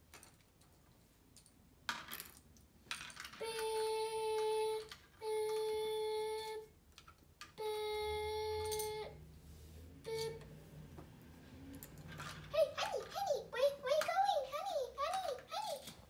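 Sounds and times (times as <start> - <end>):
plastic toy bricks clicking: 2.9 - 7.6, 11.7 - 16.0
child making beep sounds: 10.1 - 10.4.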